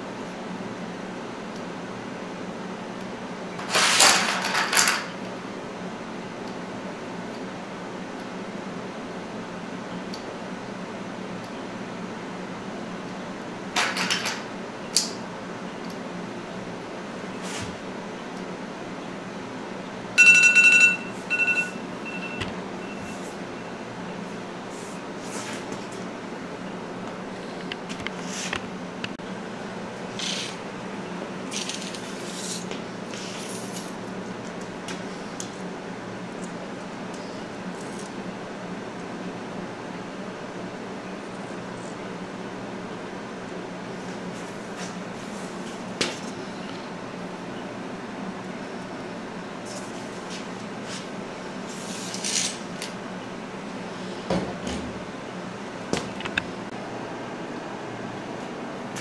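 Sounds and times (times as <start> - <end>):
low hum of room equipment: 0.0 - 59.0
scraping rustle: 49.6 - 52.7.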